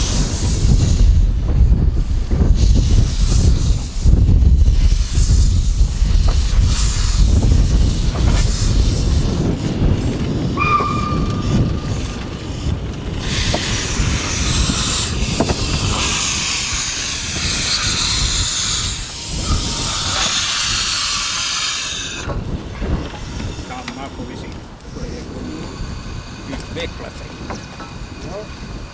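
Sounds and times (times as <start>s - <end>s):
steam hissing: 0.0s - 28.9s
steam locomotive rumbling: 0.0s - 28.9s
high squeal: 10.6s - 11.9s.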